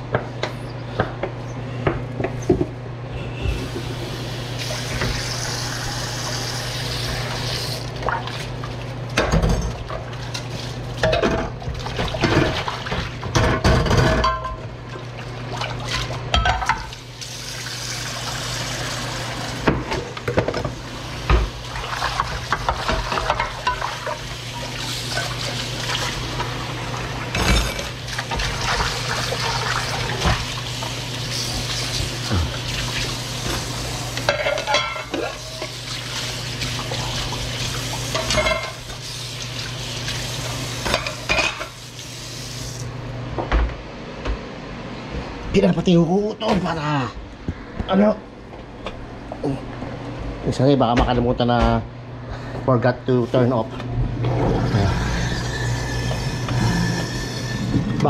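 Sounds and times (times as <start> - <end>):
tap water running: 3.5 - 13.4, 14.9 - 42.9
glass dishes clinking: 34.3 - 35.2.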